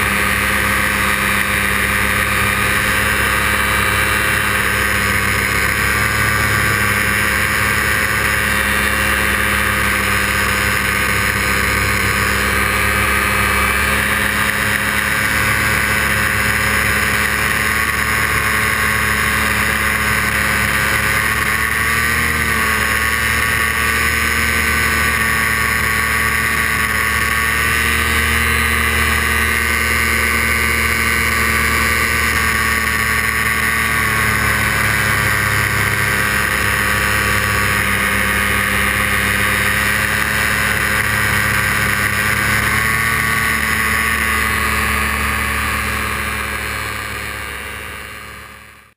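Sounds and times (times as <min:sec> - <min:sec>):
paramotor engine and propeller: 0:00.0 - 0:48.9.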